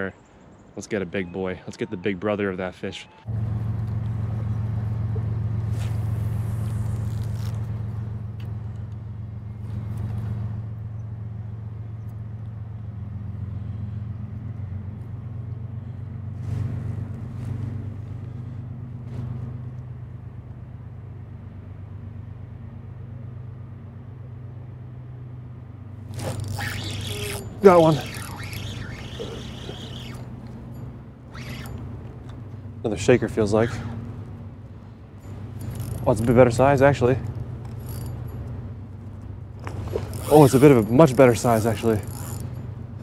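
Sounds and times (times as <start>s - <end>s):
low motor rumble: 3.2s - 43.0s.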